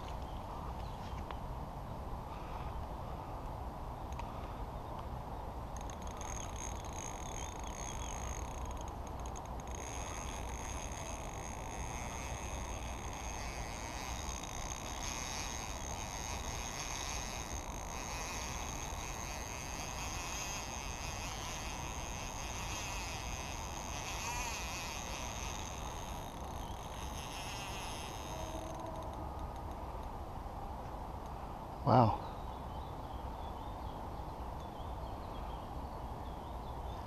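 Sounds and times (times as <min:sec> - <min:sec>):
insects chirring: 0:05.7 - 0:29.8.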